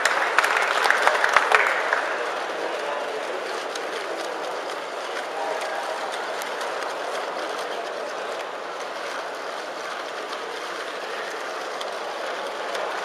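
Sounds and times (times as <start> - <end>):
crowd din in a hall: 0.0 - 13.0.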